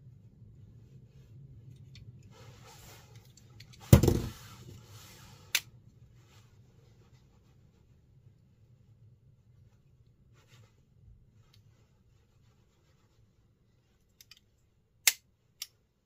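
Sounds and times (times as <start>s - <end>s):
loud knock: 3.9s - 4.3s.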